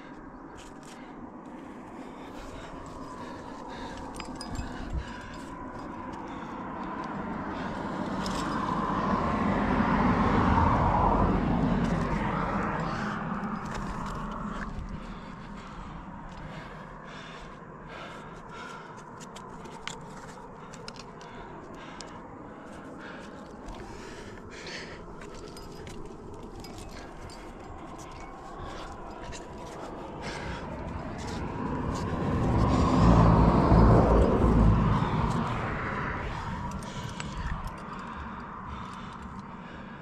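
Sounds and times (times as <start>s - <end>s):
car passing: 0.9s - 40.0s
hands scraping and tapping on rock: 19.2s - 21.3s.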